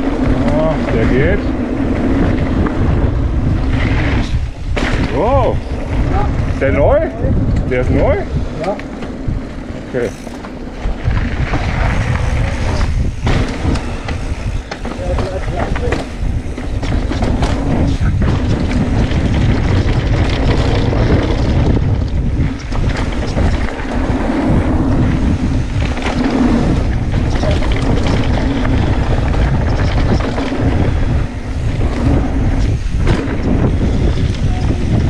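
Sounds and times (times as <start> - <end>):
tyres rumbling on dirt: 0.0 - 35.0
wind buffeting microphone: 0.0 - 35.0
bike knocks and rattles: 8.6 - 35.0.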